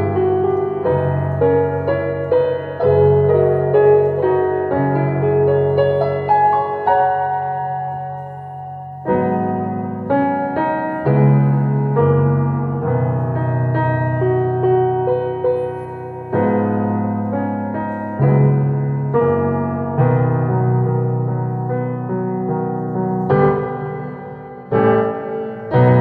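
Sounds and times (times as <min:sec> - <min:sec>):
slow solo piano chords: 0:00.0 - 0:26.0.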